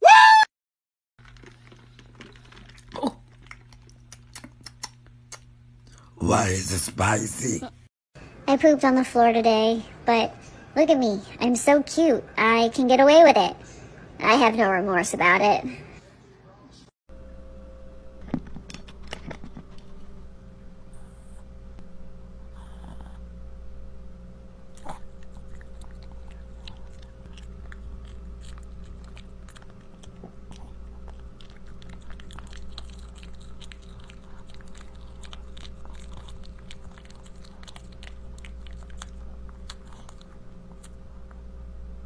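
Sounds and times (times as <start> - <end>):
dog crunching food: 1.2 - 5.4, 24.7 - 41.4
steady low hum: 15.6 - 42.0.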